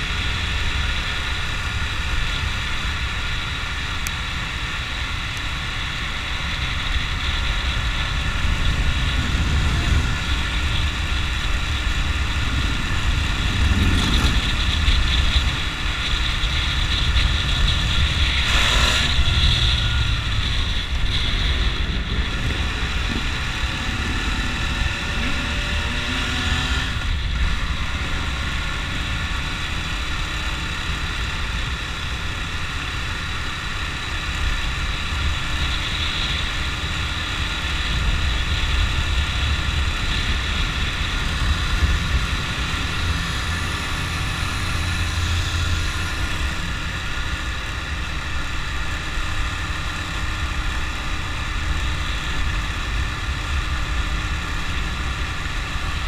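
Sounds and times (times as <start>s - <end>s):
motorcycle engine cruising: 0.0s - 56.0s
wind and road noise: 0.0s - 56.0s
engine passing by: 6.3s - 29.6s.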